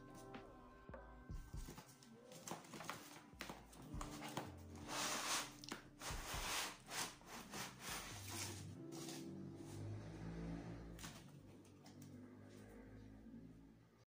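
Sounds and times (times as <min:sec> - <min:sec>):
cardboard and foam scraping: 0:03.9 - 0:09.3.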